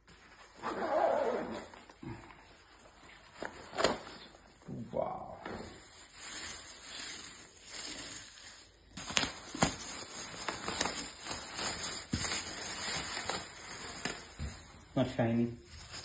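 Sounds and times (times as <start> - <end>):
plastic sheet rustling and crinkling: 0.0 - 16.0.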